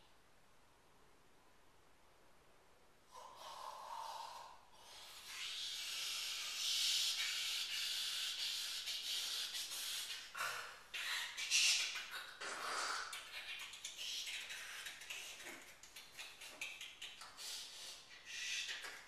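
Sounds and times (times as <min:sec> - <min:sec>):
man hissing through his mouth: 0:03.1 - 0:13.2, 0:17.3 - 0:19.0.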